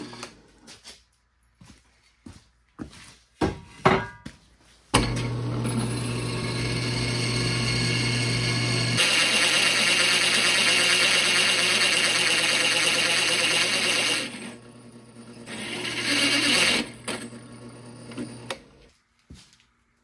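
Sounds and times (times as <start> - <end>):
drill press motor humming: 0.0 - 0.4, 5.0 - 18.8
drill bit grinding metal: 5.0 - 18.6.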